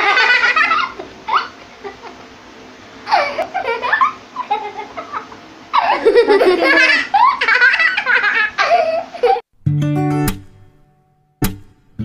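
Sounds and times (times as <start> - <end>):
girls laughing: 0.0 - 2.2, 3.0 - 9.4.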